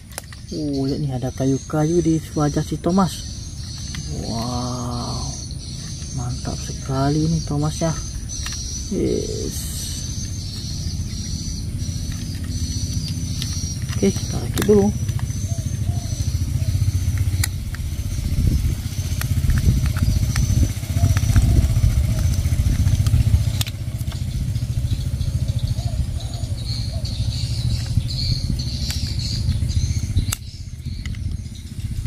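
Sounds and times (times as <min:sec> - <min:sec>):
sharp plastic clicks: 0:00.0 - 0:25.0, 0:27.3 - 0:32.0.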